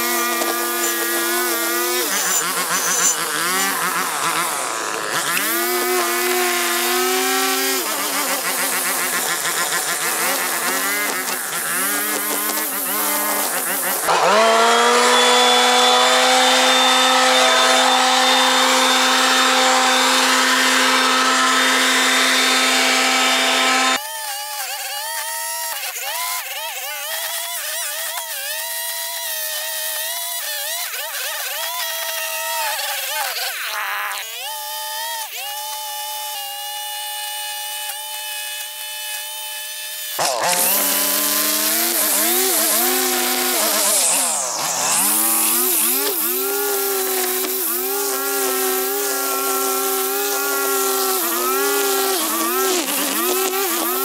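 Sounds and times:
power tool rushing hiss: 0:00.0 - 0:24.0, 0:38.3 - 0:54.0
string trimmer engine revving: 0:00.0 - 0:24.8, 0:31.5 - 0:54.0.

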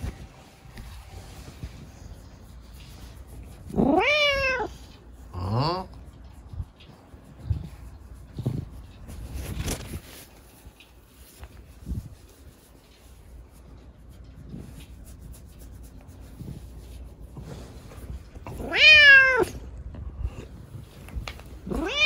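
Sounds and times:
kitten meowing: 0:03.8 - 0:04.7, 0:18.7 - 0:19.5, 0:21.7 - 0:22.0.

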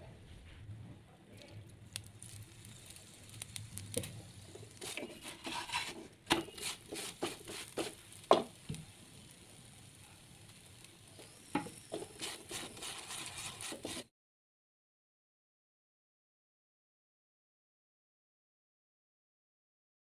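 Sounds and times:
flatbread crackling on hot pan: 0:01.3 - 0:14.1.

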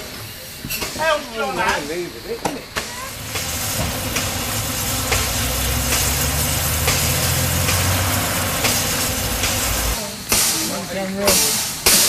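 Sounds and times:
steam hissing: 0:00.0 - 0:12.0
low engine-like rumble: 0:03.0 - 0:10.0.

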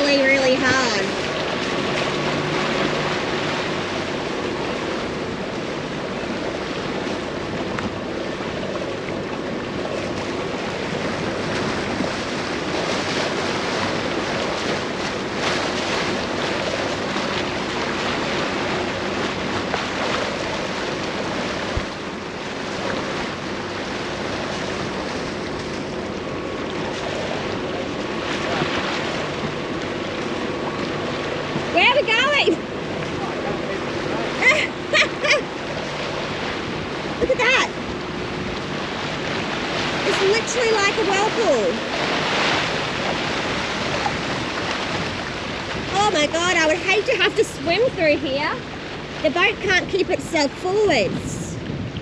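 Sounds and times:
choppy water rushing past hull: 0:00.0 - 0:52.0
low steady hum: 0:00.0 - 0:52.0
wind buffeting microphone: 0:00.0 - 0:52.0.

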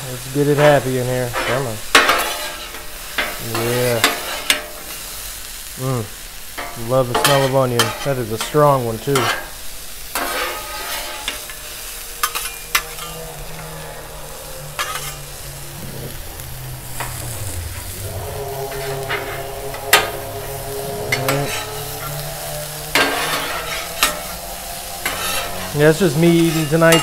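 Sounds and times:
vegetables sizzling on griddle: 0:00.0 - 0:27.0
metal spatulas scraping and clacking: 0:06.6 - 0:09.5, 0:10.1 - 0:14.2, 0:14.8 - 0:15.3.

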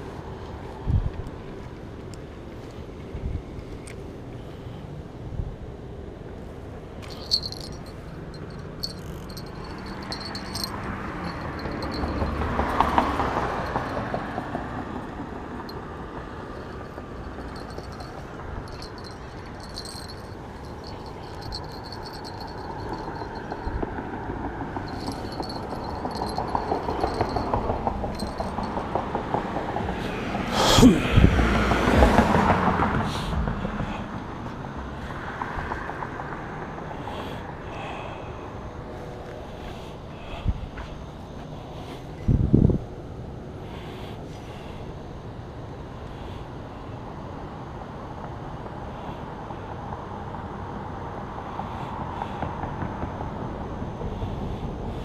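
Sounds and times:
vehicle passing by: 0:07.6 - 0:20.7, 0:21.3 - 0:34.2
car passing by: 0:28.8 - 0:36.9.

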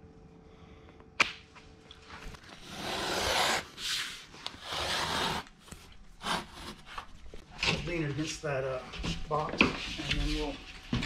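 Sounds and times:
knife scoring drywall paper: 0:02.5 - 0:07.4.

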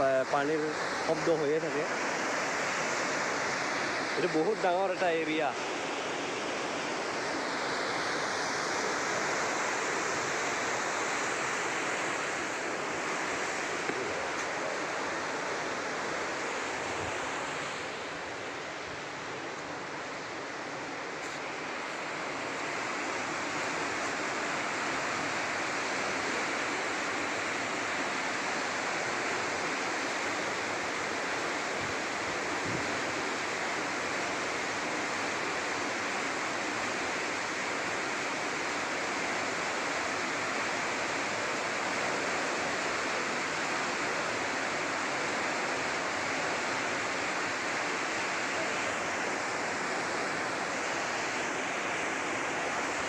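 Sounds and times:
water rushing through sluice gate: 0:00.0 - 0:53.0.

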